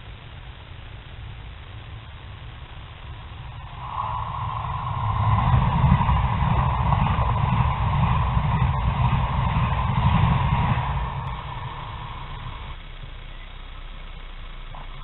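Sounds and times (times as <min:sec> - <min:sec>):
wheels rumbling on rails: 0:00.0 - 0:15.0
high-speed train passing: 0:02.2 - 0:13.0.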